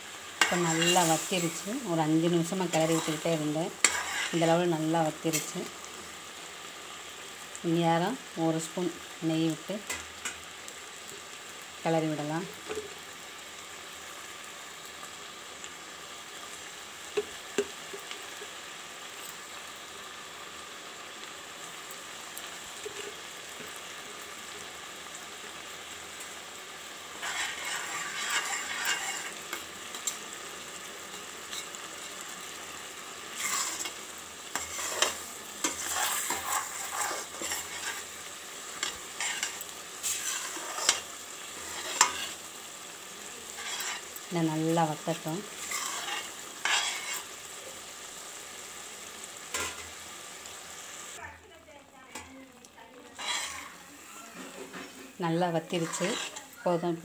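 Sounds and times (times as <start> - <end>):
wooden spoon scraping a pan: 2.7 - 4.6, 27.2 - 30.2, 33.3 - 38.2, 38.8 - 42.4, 43.5 - 44.2, 45.2 - 47.3, 53.1 - 56.5.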